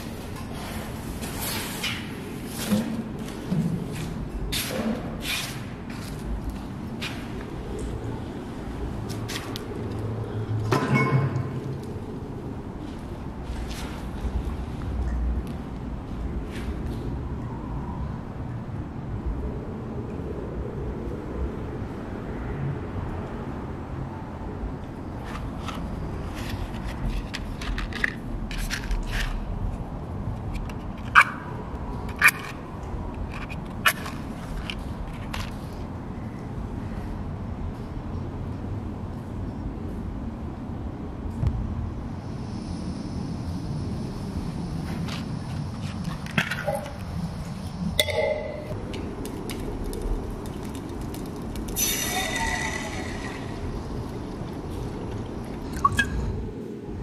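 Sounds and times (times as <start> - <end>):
steady low rumble: 2.1 - 30.6, 35.8 - 57.0
camping stove burning roar: 48.7 - 55.8.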